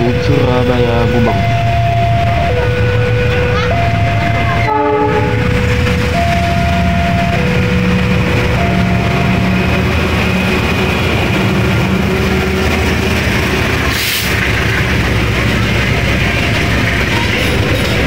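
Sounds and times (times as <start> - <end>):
locomotive engine drone: 0.0 - 18.0
train passing at speed: 0.0 - 18.0
train horn: 4.6 - 5.7.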